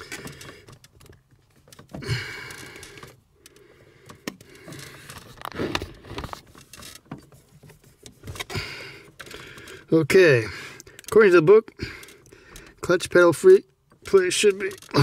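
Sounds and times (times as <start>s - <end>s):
clicks and taps at a pedal: 0.0s - 9.9s, 13.8s - 15.0s.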